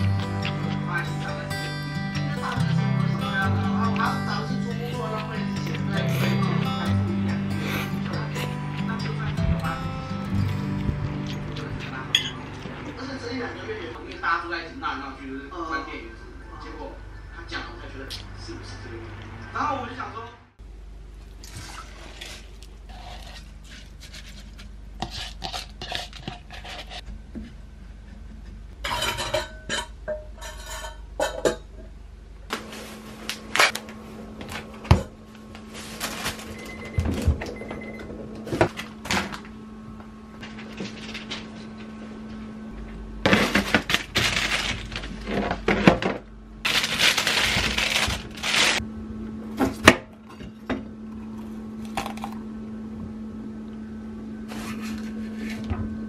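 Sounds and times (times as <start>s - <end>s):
steady low hum: 0.0s - 56.0s
dishes and utensils clattering: 12.1s - 12.8s, 28.8s - 31.9s.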